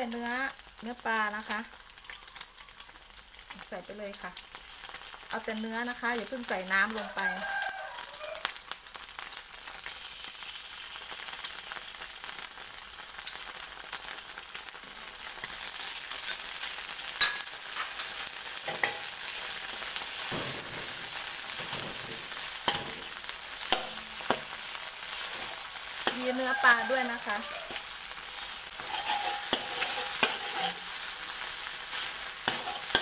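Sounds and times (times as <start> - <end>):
oil sizzling in a wok: 0.0 - 33.0
metal spatula scraping a wok: 17.2 - 33.0.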